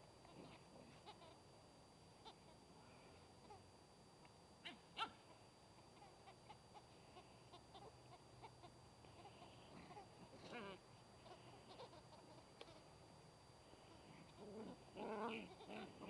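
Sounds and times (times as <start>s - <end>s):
puppies yelping: 4.6s - 5.4s, 14.6s - 16.0s.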